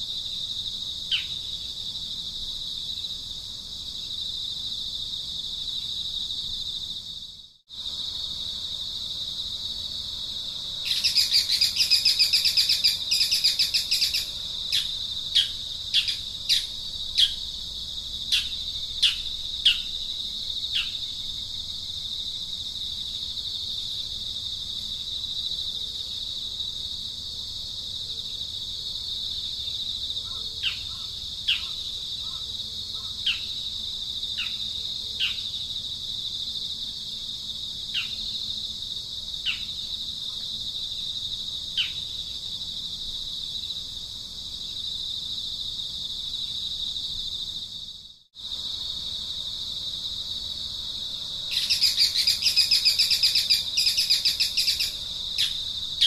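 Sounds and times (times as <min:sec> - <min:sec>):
insects droning: 0:00.0 - 0:56.0
bird chattering and chirping: 0:10.9 - 0:17.4, 0:51.6 - 0:55.6.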